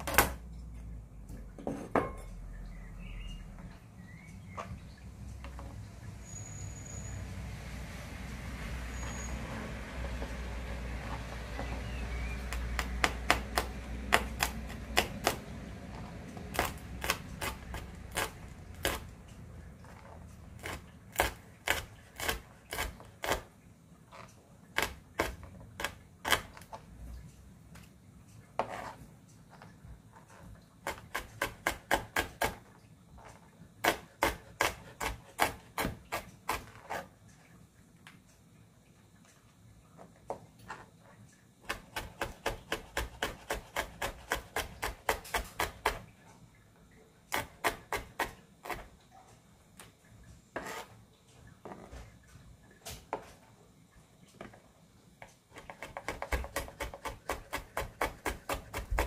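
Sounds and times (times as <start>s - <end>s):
knife chopping on cutting board: 12.4s - 15.4s, 30.9s - 32.6s, 33.8s - 36.7s, 41.7s - 46.0s, 55.6s - 59.0s.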